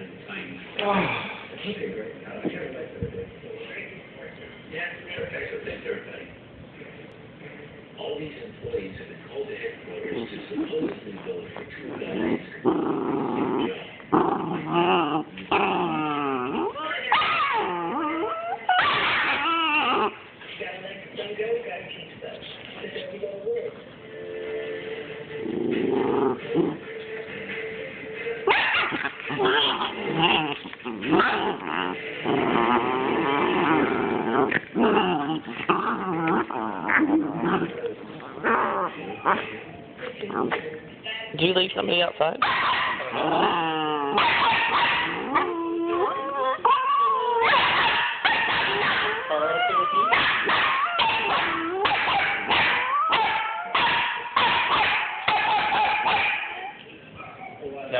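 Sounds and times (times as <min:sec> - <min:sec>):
dogs growling: 0:10.0 - 0:20.3, 0:25.3 - 0:26.9, 0:28.5 - 0:40.9, 0:42.4 - 0:57.8
dogs whining yips: 0:44.4 - 0:48.1.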